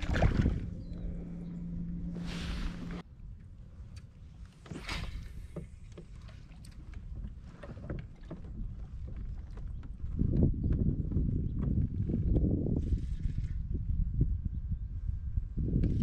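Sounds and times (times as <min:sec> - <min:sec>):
low rush: 0:00.0 - 0:03.0
water lapping against kayak hull: 0:00.0 - 0:13.9.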